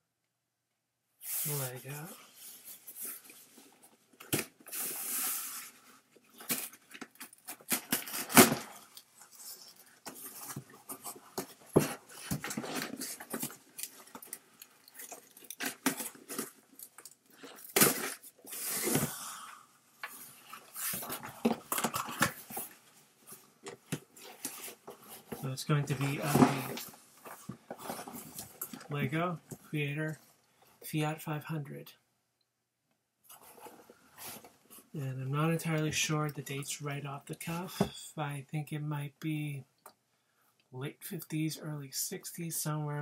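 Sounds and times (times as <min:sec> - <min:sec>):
cardboard rustling and tearing: 0:04.3 - 0:19.2.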